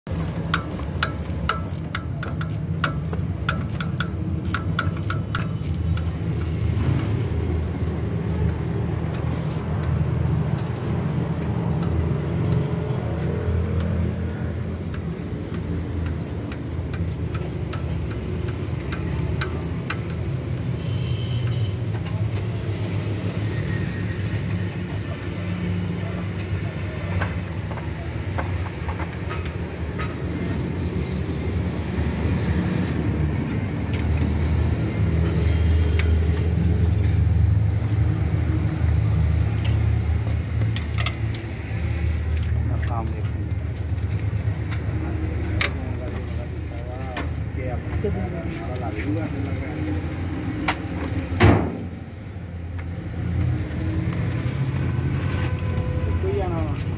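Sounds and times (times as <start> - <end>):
wrench clicking: 0.1 - 7.7, 11.4 - 22.5, 28.4 - 29.6, 37.8 - 38.1, 39.5 - 41.5.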